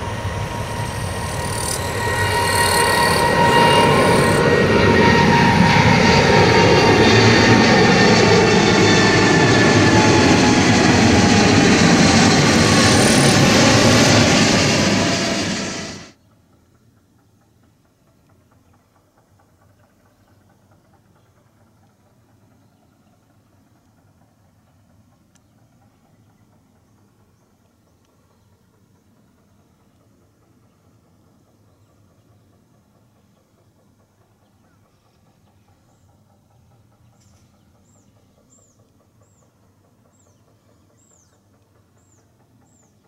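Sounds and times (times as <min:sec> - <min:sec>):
jet airliner roaring overhead: 0:00.0 - 0:16.2.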